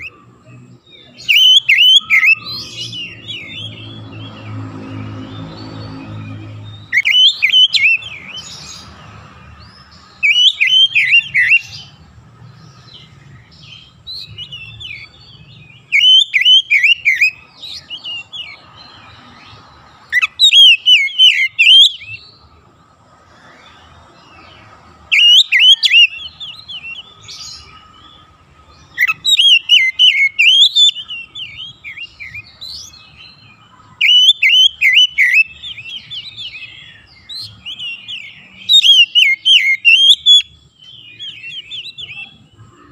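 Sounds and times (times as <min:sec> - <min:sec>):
bird singing whistled phrases: 0:01.0 - 0:04.0, 0:06.1 - 0:08.6, 0:10.2 - 0:11.9, 0:15.8 - 0:18.6, 0:20.1 - 0:22.3, 0:25.1 - 0:27.3, 0:28.9 - 0:32.9, 0:34.0 - 0:42.4.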